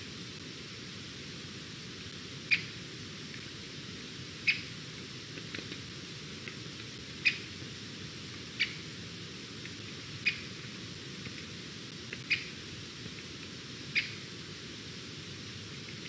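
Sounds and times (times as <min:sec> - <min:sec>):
background hiss: 0:00.0 - 0:16.0
eagle squeaky calls: 0:04.5 - 0:04.7, 0:12.3 - 0:12.5, 0:14.0 - 0:14.2.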